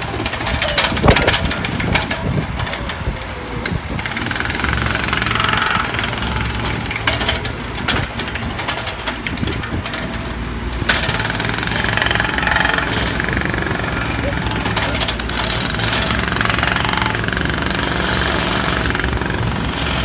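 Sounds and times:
diesel engine running: 0:00.0 - 0:20.0
hydraulic breaker hammering: 0:03.6 - 0:10.1, 0:10.8 - 0:20.0.

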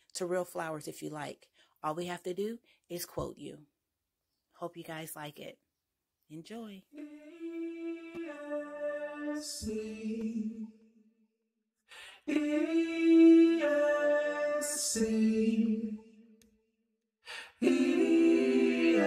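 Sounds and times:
person singing a cappella jingle: 0:06.9 - 0:10.7, 0:12.1 - 0:16.0, 0:17.3 - 0:19.0.

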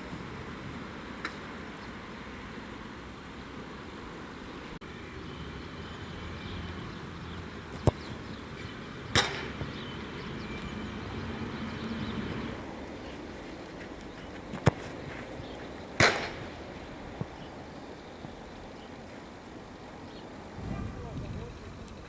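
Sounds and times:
outdoor background noise: 0:00.0 - 0:22.0
football kicked with boot: 0:14.5 - 0:15.0.

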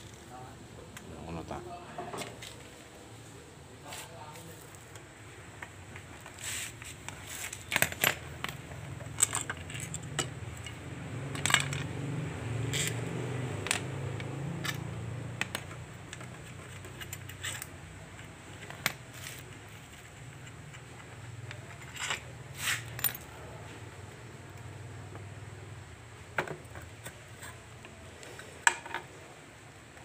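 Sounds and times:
metallic tool clicks and clinks: 0:12.7 - 0:19.0.

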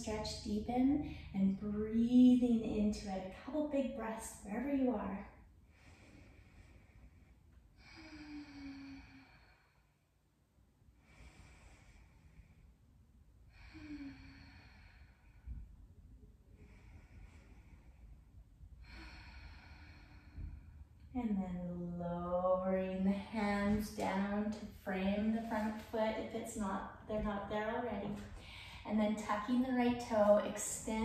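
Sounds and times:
woman breathing slowly: 0:01.0 - 0:01.4, 0:05.2 - 0:21.2, 0:28.1 - 0:28.9.

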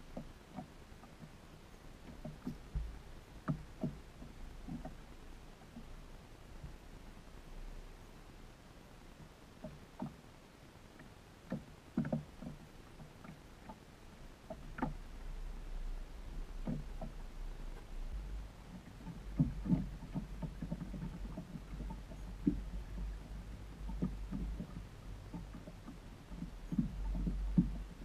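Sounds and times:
ripples lapping against boat hull: 0:00.0 - 0:07.8, 0:09.2 - 0:28.0
low rumble: 0:15.0 - 0:28.0.

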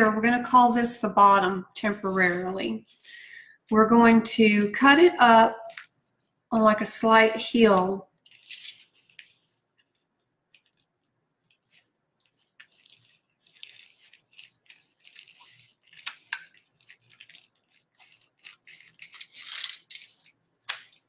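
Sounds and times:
plastic crinkling: 0:08.0 - 0:21.0
scissors cutting plastic: 0:10.5 - 0:21.0.

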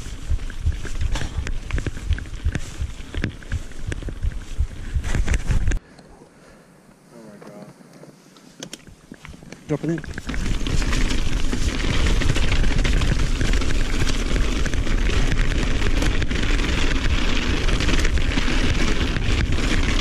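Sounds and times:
bike rattling: 0:00.0 - 0:05.8, 0:08.8 - 0:20.0
tyres rolling over gravel: 0:09.2 - 0:20.0.

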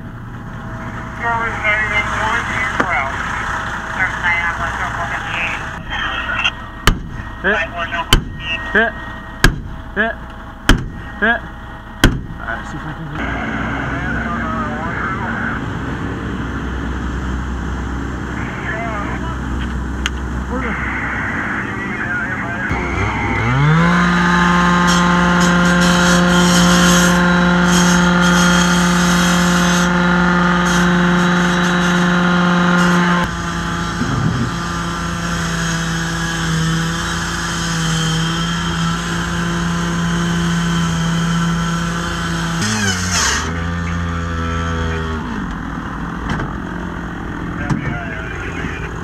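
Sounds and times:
cut-off saw cutting metal: 0:22.7 - 0:44.9.

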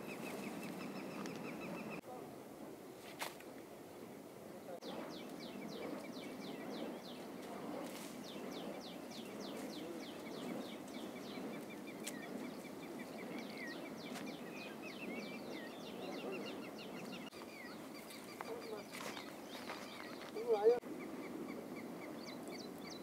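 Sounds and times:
bird chirping: 0:00.0 - 0:02.0, 0:04.8 - 0:07.5, 0:08.2 - 0:23.0
outdoor background hiss: 0:00.0 - 0:23.0.

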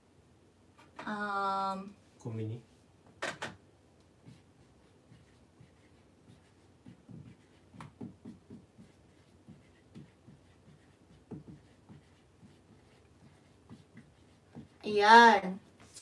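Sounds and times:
marker writing on whiteboard: 0:04.2 - 0:15.9
marker tap on whiteboard: 0:05.2 - 0:14.8.

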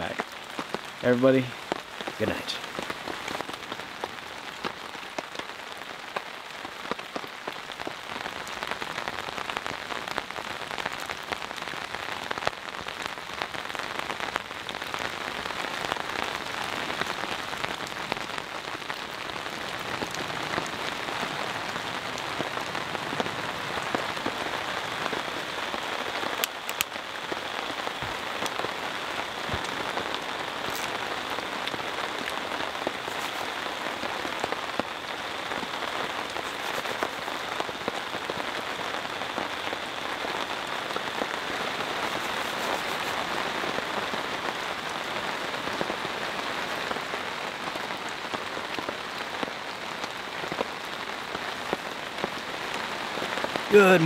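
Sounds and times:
rain falling on a tarp: 0:00.0 - 0:54.0
single raindrops tapping: 0:26.4 - 0:27.0.

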